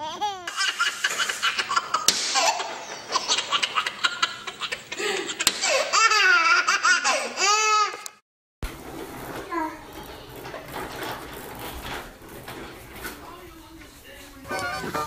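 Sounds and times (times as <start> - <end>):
baby laughing: 0.0 - 8.2.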